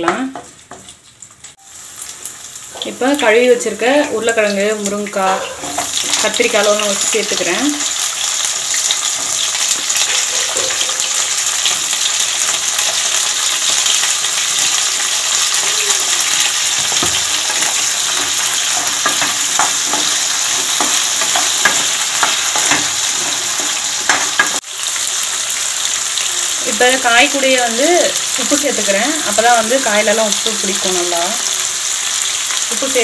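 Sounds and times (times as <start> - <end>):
vegetables sizzling in oil: 0.0 - 33.0
spatula scraping a pan: 5.2 - 6.4, 16.8 - 24.6.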